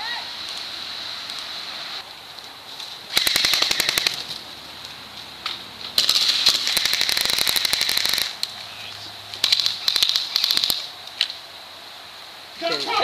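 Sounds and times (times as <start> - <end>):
airsoft rifles firing: 3.1 - 4.3, 6.0 - 8.4, 9.4 - 10.9.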